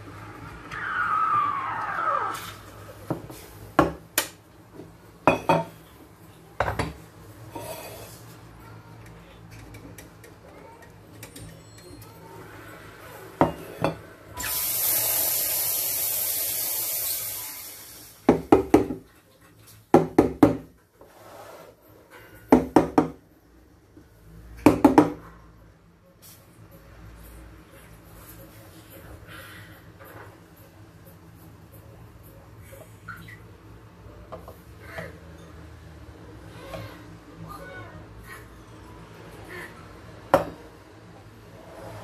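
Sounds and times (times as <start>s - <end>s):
espresso steam wand hissing: 14.4s - 18.2s.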